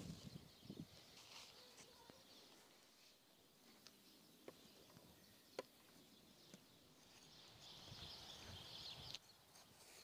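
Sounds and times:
snow being scraped by hand: 9.5 - 10.0.

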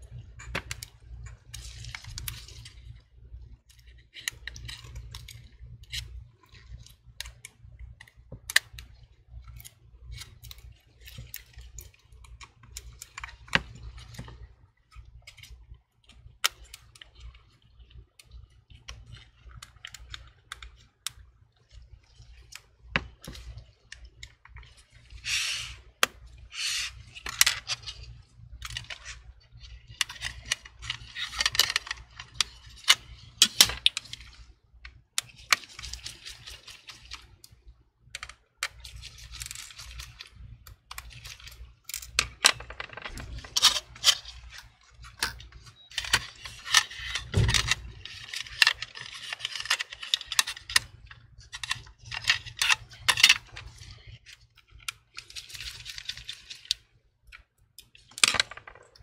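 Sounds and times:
rustling or scraping: 24.6 - 34.5, 42.4 - 56.8
clicks of small parts: 30.0 - 59.0.

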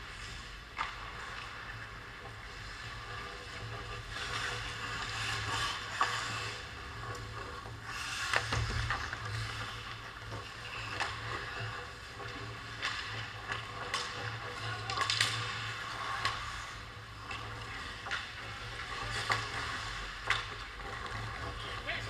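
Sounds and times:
skate blades scraping ice: 0.0 - 22.0
hockey sticks and puck clacking: 0.1 - 22.0.

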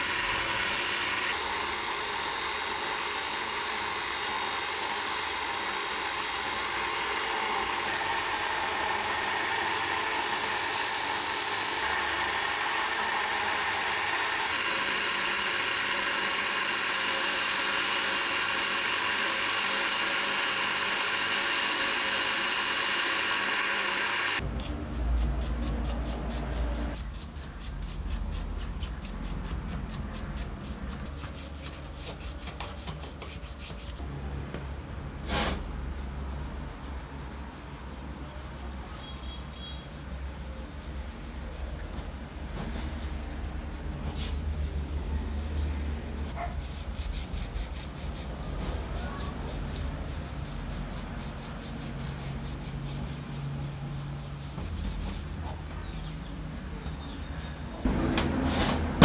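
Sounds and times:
bench grinder wire wheel: 0.0 - 27.0
brush scrubbing copper windings: 36.0 - 41.8, 42.8 - 48.3.

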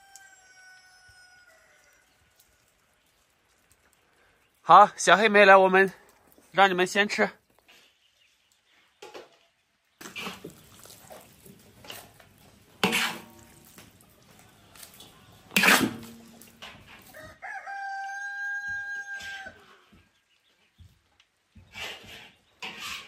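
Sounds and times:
rooster crowing: 0.0 - 2.2, 17.1 - 19.8
metal spatula scraping a wok: 10.0 - 13.6, 15.0 - 17.1, 21.7 - 23.0.

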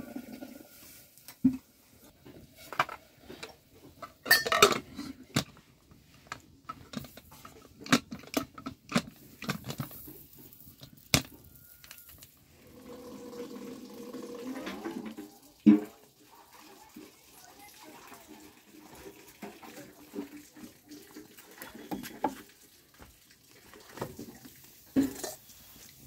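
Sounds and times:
metal cookware clanking: 4.0 - 5.2.

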